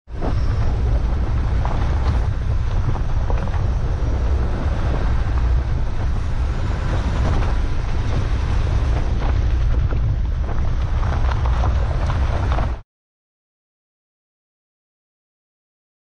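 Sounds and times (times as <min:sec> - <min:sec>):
gravel clicks: 0:00.1 - 0:12.8
wind rumble on microphone: 0:00.1 - 0:12.8
tyre noise on gravel: 0:00.2 - 0:12.8.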